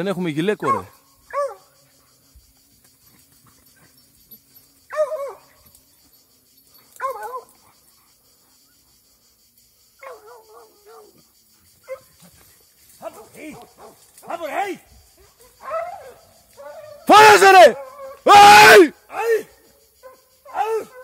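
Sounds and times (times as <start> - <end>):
hound baying: 0.6 - 1.8, 3.5 - 5.7, 6.8 - 7.8, 15.2 - 18.3.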